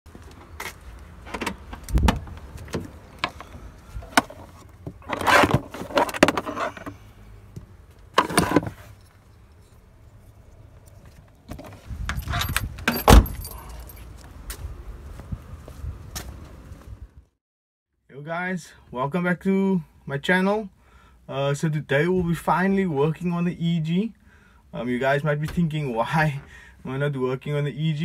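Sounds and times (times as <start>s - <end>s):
keys jangling: 12.1s - 14.1s.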